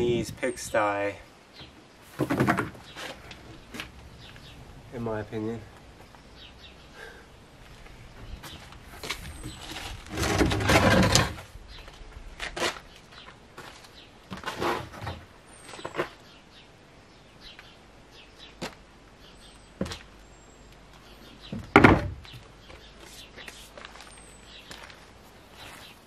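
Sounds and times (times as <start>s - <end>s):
wood and plastic knocks: 2.2s - 2.8s, 21.5s - 22.3s.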